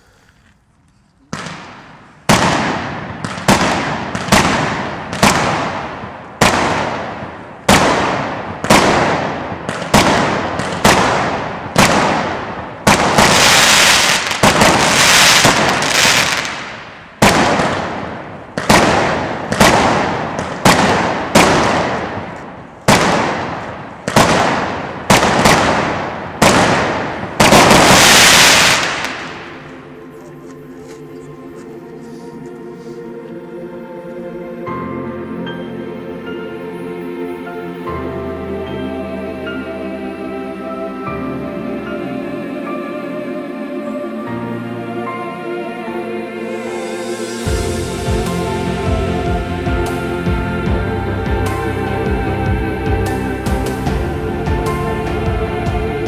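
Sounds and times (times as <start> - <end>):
firework cake bangs: 1.3 - 29.4.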